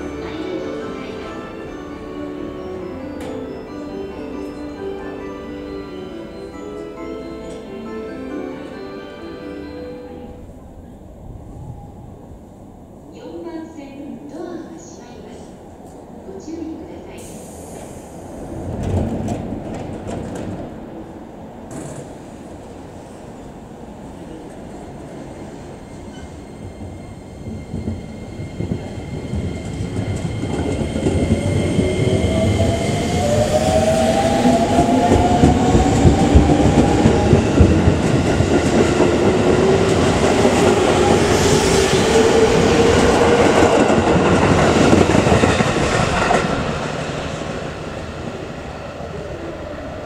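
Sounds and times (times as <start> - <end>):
train wheels on rails: 17.1 - 20.9, 21.6 - 23.3, 24.4 - 50.0.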